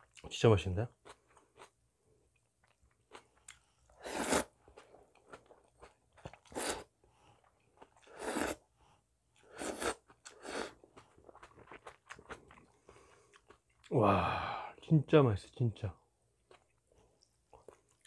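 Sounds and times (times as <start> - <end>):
soft chewing: 0.0 - 14.0, 16.3 - 18.0
person slurping noodles: 4.0 - 4.5, 6.4 - 6.9, 8.0 - 8.6, 9.5 - 10.8.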